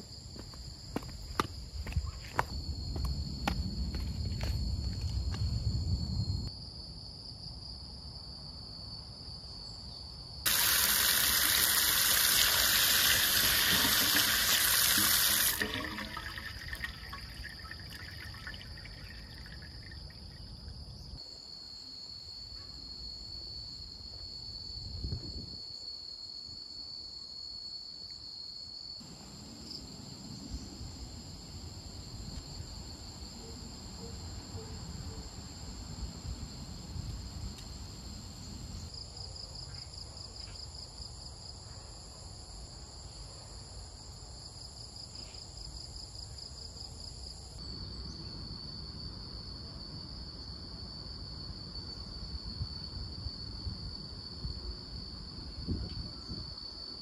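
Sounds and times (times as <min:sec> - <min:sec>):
insects chirring: 0:00.0 - 0:06.6, 0:08.4 - 0:41.6
water running from tap into sink: 0:10.5 - 0:18.6
water trickling and draining: 0:10.5 - 0:20.6.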